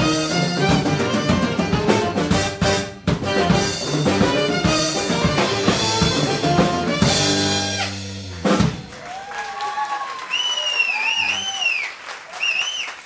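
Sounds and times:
live jazz band playing: 0.0 - 9.2
busy drumming: 0.0 - 9.8
audience applause: 8.7 - 13.0
audience whistle: 8.9 - 13.0.

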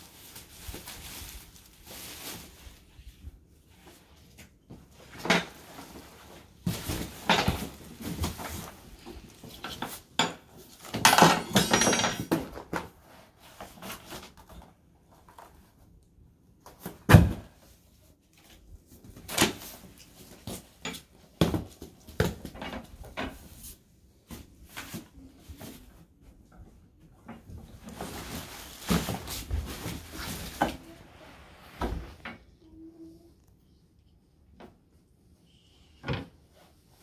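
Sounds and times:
plastic wrapping crinkling: 0.0 - 3.0, 27.7 - 31.0
cardboard rustling and scraping: 0.0 - 10.9, 27.3 - 32.2
knocks and clatters of handling: 4.4 - 15.6, 19.1 - 23.6.

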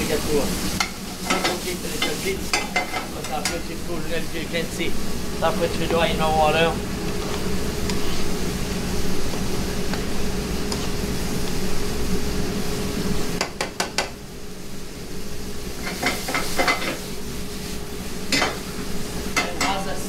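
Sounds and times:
kitchen hum: 0.0 - 20.0
mushrooms sauteing in a pan: 0.0 - 20.0
utensil stirring in a pan: 0.4 - 3.9.

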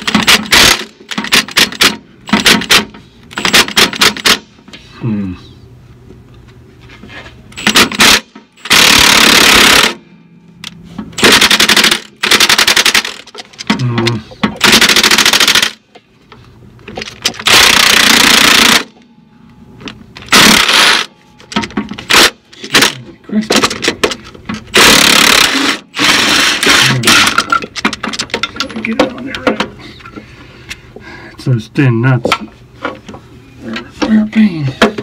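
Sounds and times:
impact wrench hammering: 0.0 - 4.6, 7.6 - 10.1, 11.0 - 15.8, 17.2 - 19.0, 20.2 - 23.0, 23.6 - 29.6.

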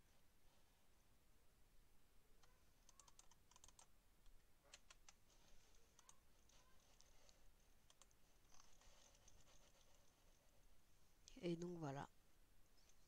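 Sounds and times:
keyboard and mouse clicks: 2.4 - 5.3, 5.9 - 10.0.

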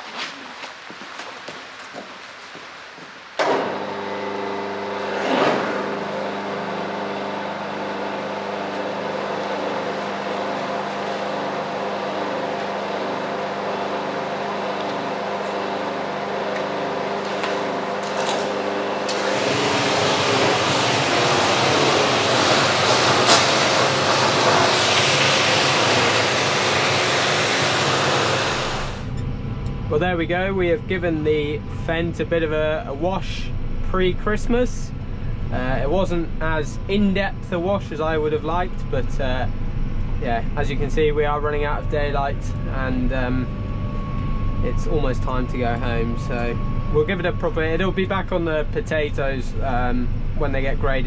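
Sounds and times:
pressure washer pump humming: 3.4 - 29.2
high-pressure spray hissing: 19.1 - 29.1.

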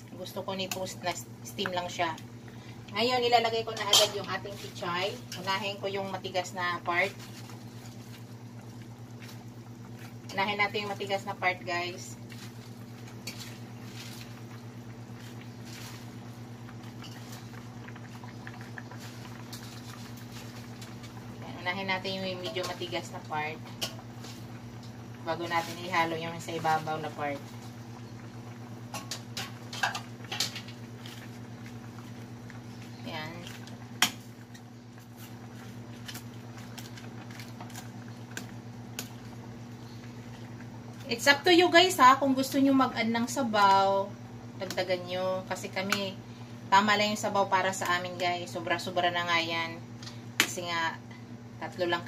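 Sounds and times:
steady low hum: 0.0 - 52.0
soup bubbling and popping: 6.4 - 42.0
leaves rustling: 12.2 - 17.6.

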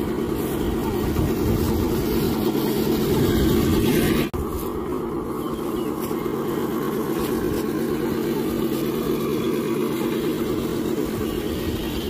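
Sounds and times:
electric motor whirring: 0.0 - 12.0.

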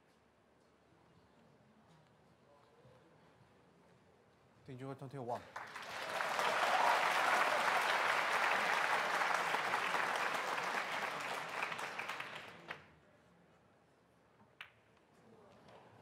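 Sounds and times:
audience applause: 5.6 - 12.8.

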